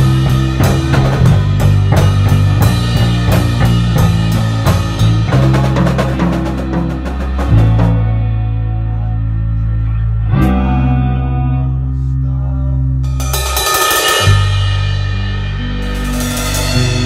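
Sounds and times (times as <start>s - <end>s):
guitar: 0.0s - 17.0s
held bass notes: 0.0s - 17.0s
bright cymbal-like wash: 13.1s - 17.0s.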